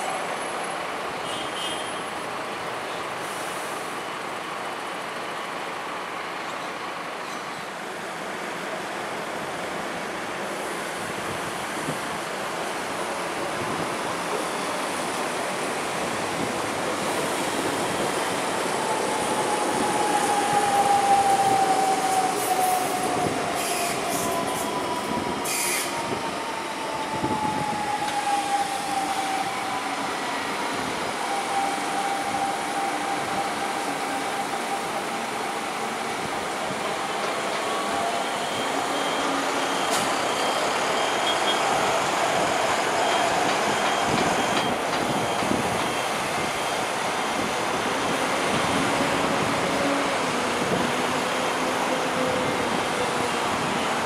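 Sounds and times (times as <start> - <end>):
train wheels rolling on track: 7.3 - 54.0
high wheel squeals: 37.2 - 46.8.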